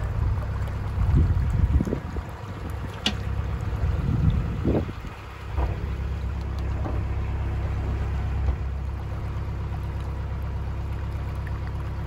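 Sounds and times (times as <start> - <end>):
wind noise: 0.0 - 6.2
boat engine rumbling: 0.0 - 12.0
water noise: 0.0 - 12.0.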